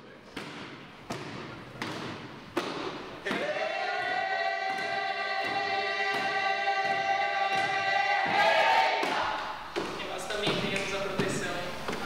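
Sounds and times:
voices singing a held note: 0:03.3 - 0:09.6.

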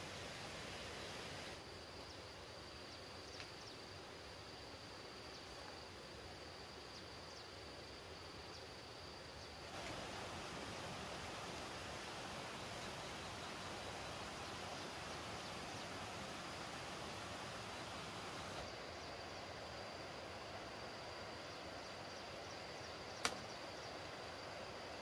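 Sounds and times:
low hiss: 0:00.0 - 0:25.0
faint chirps: 0:09.3 - 0:19.8.

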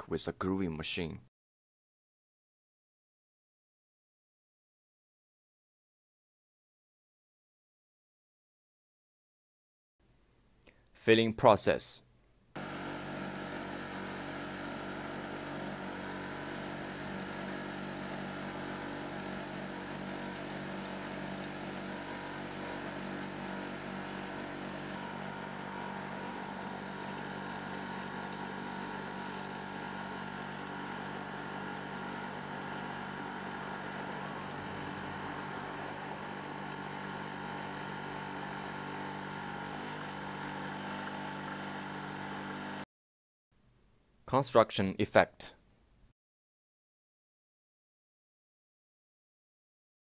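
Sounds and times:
machine engine running: 0:12.6 - 0:42.8.

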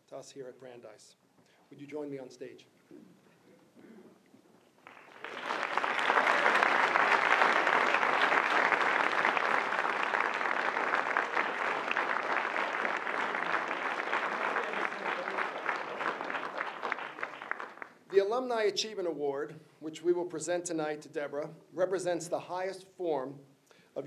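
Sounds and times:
audience applauding: 0:04.8 - 0:18.0.

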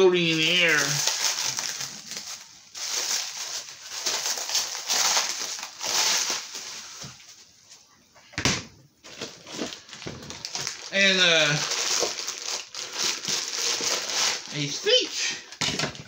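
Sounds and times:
packaging rustling and crinkling: 0:00.2 - 0:07.7, 0:09.0 - 0:16.0.

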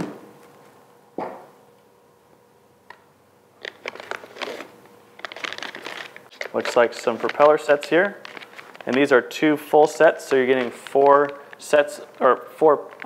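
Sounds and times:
plastic bag crinkling: 0:03.6 - 0:13.0.

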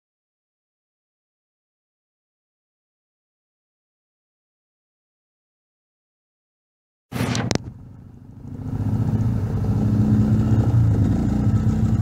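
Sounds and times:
atv engine running: 0:07.1 - 0:12.0
sharp click: 0:07.2 - 0:07.7.

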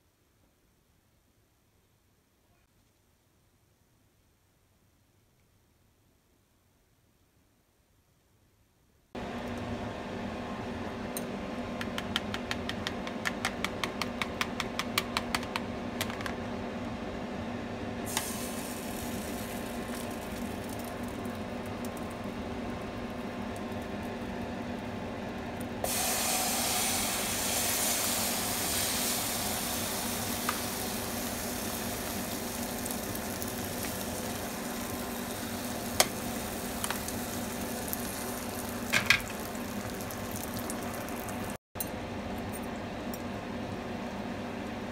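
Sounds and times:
egg sizzling in a pan: 0:18.1 - 0:41.6.

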